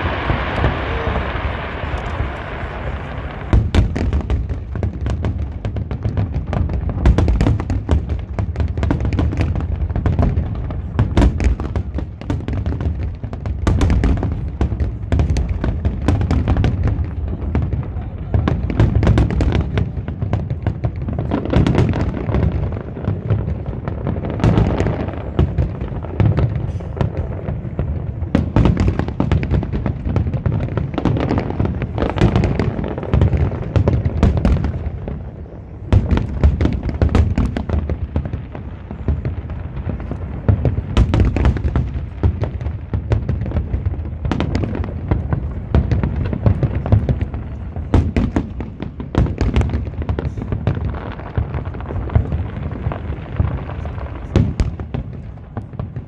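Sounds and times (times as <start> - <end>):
fireworks booming and crackling: 0.0 - 56.0.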